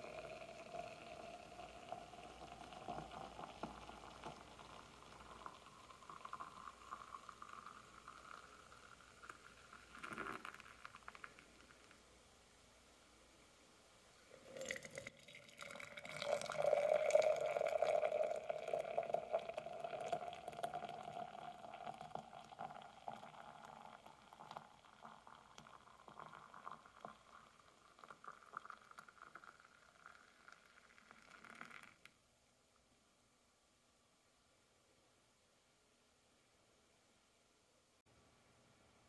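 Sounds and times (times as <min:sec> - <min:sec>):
juice pouring into a glass jar: 0:00.0 - 0:12.0, 0:14.2 - 0:32.2.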